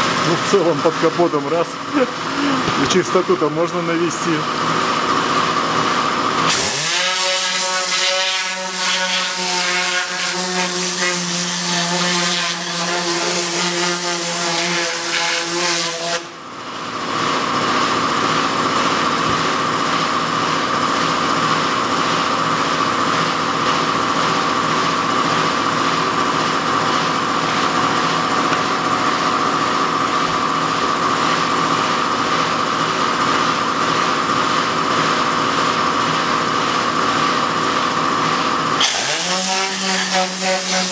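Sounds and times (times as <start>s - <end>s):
air gun hissing whine: 6.4s - 16.4s, 38.3s - 40.9s.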